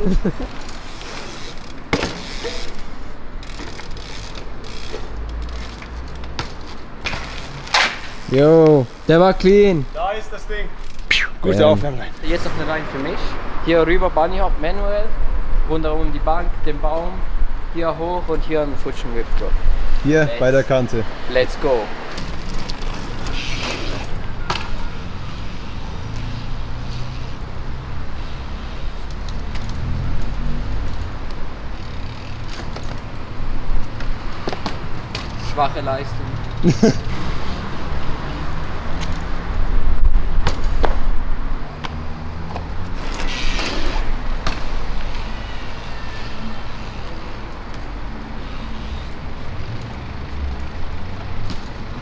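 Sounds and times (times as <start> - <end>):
tyres rolling on paving: 0.0 - 10.9
bike freewheel ratcheting: 0.5 - 9.2, 10.8 - 11.1, 24.8 - 27.4, 28.2 - 29.8, 31.7 - 33.1, 40.5 - 41.0, 43.0 - 47.4, 48.4 - 49.2
bike landing knocks: 1.8 - 2.8, 40.4 - 41.0.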